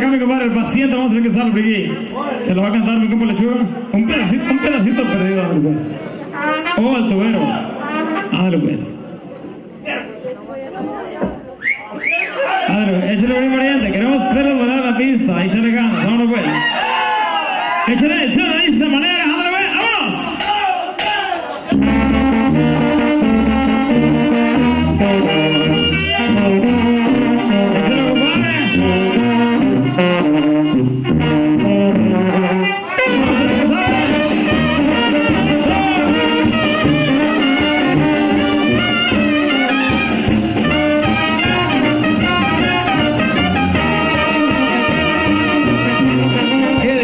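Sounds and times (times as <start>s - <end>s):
brass band playing: 0.0s - 9.2s, 12.4s - 47.0s
trombones: 3.6s - 9.2s, 21.7s - 47.0s
sousaphone bass line: 21.7s - 47.0s.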